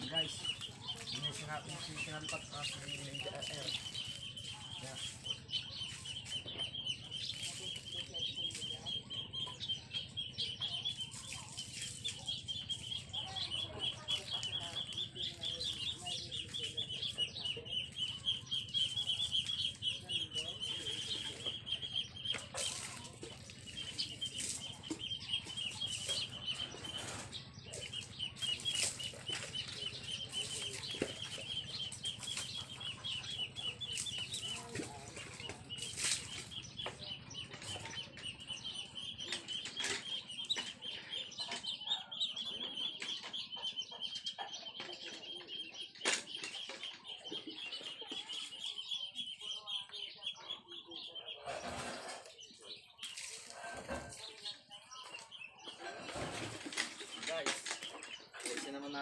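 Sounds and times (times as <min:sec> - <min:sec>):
water splashing: 0:22.4 - 0:36.6.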